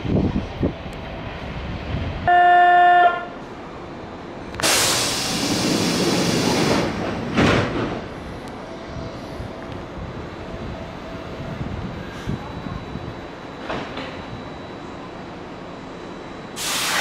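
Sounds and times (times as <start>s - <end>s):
train horn toot: 2.2s - 3.4s
loud hiss: 4.6s - 7.0s, 16.6s - 17.0s.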